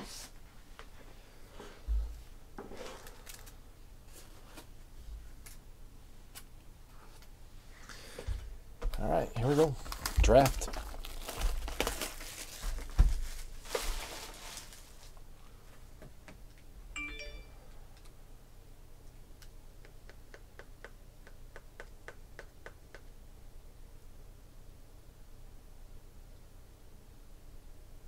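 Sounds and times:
wrapping crinkling: 2.8 - 3.6, 9.4 - 15.2
brief chime: 17.0 - 17.7.

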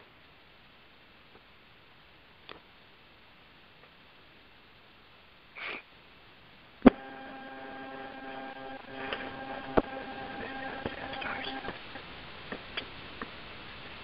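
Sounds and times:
breathy hiss: 5.5 - 6.0
electrical hum: 6.8 - 12.3
phone line clicks: 6.9 - 11.9.

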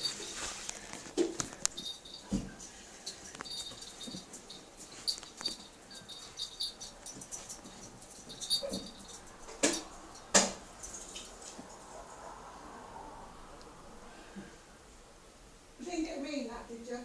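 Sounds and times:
dog scuffing on towel: 0.0 - 1.1.

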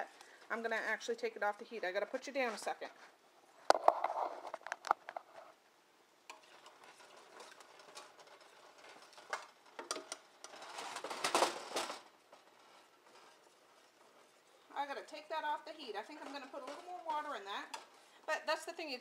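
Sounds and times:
whisk scraping metal pan: 6.3 - 11.1.

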